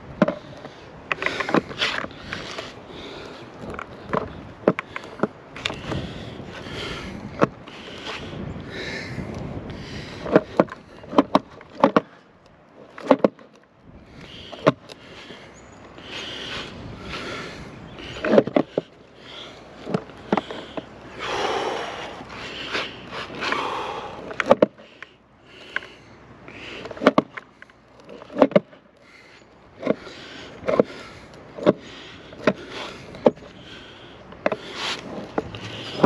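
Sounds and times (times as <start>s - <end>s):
skateboard wheels hissing: 18.6s - 24.2s, 32.6s - 36.0s.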